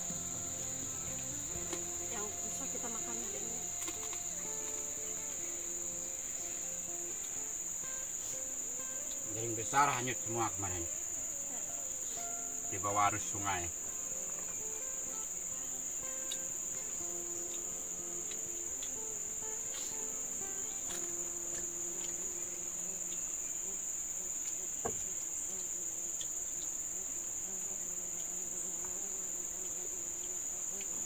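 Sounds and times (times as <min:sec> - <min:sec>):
insects droning: 0:00.0 - 0:31.0
faint ticks and clicks: 0:00.8 - 0:10.2, 0:13.2 - 0:31.0.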